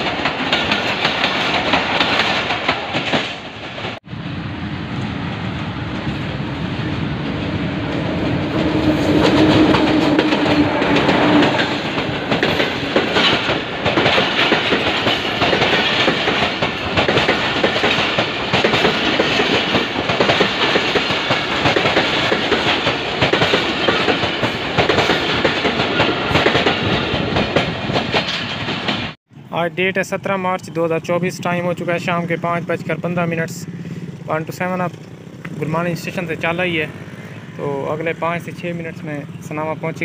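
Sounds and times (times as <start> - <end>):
train wheels clattering over rails: 0.0 - 4.0, 5.3 - 29.2.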